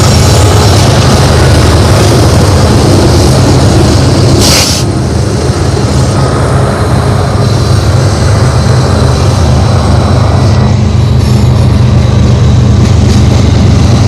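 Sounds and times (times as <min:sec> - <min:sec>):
diesel locomotive engines droning: 0:00.0 - 0:14.0
short hiss: 0:04.4 - 0:04.9.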